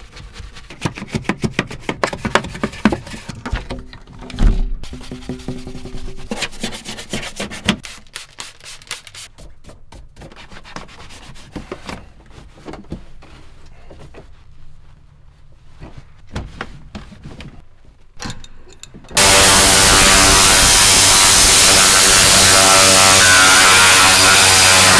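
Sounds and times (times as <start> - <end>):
brush scrubbing plastic: 4.8 - 9.5.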